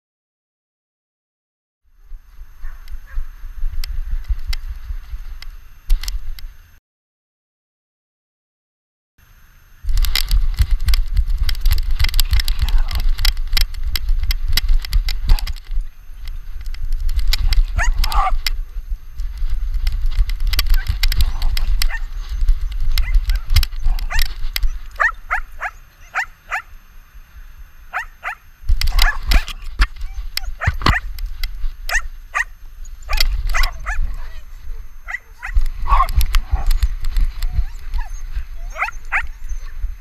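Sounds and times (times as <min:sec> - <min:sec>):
camera rumble and knocking: 0:02.1 - 0:06.6, 0:09.8 - 0:26.7, 0:27.9 - 0:40.0
dogs barking and yipping: 0:12.0 - 0:13.4, 0:14.8 - 0:15.7, 0:16.6 - 0:18.6, 0:19.4 - 0:26.8, 0:27.9 - 0:40.0.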